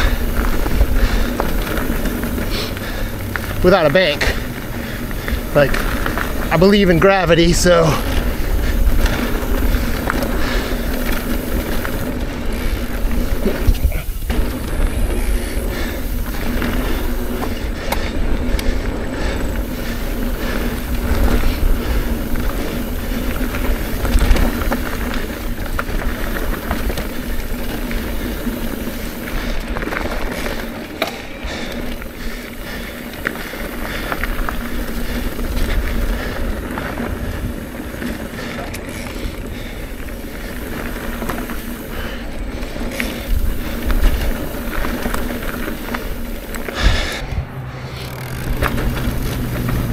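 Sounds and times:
wind rumbling on microphone: 0:00.0 - 0:30.7, 0:31.5 - 0:49.9
bike tyre roar: 0:00.0 - 0:49.9
steady low hum: 0:39.6 - 0:49.9.

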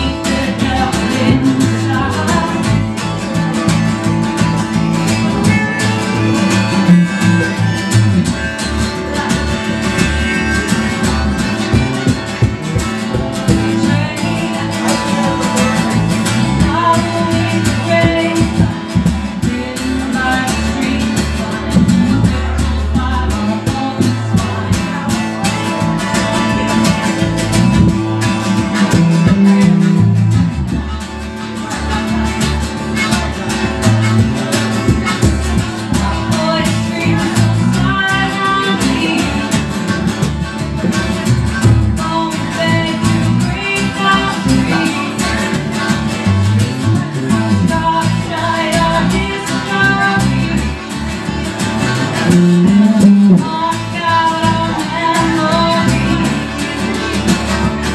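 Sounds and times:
held melody line: 0:00.0 - 0:57.9
strummed acoustic guitar: 0:00.0 - 0:57.9.

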